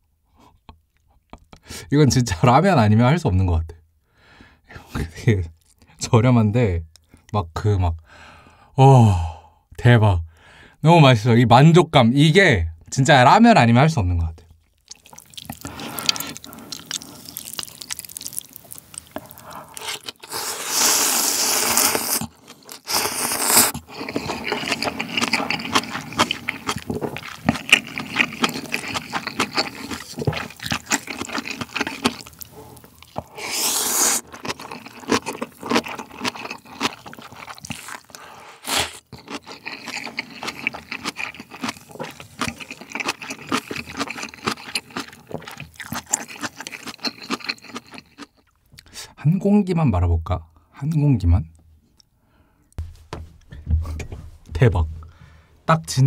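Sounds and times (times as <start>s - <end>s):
wet chewing: 14.5s - 48.9s
slurping noodles: 14.9s - 48.3s.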